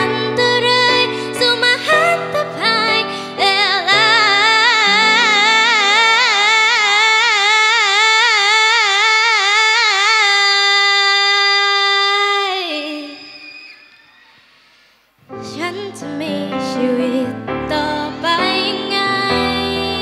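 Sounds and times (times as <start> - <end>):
piano chords: 0.0 - 7.3, 15.3 - 20.0
woman singing long note: 3.8 - 9.0.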